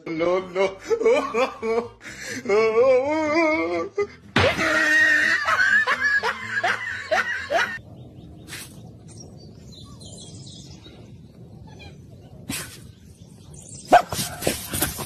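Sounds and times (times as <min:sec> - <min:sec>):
person laughing: 0:00.2 - 0:07.8.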